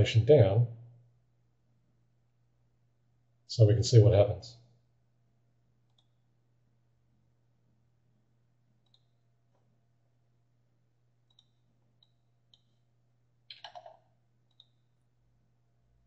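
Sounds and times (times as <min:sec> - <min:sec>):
computer mouse clicks: 0:05.9 - 0:06.2, 0:08.8 - 0:09.2, 0:11.2 - 0:12.8, 0:13.5 - 0:14.9.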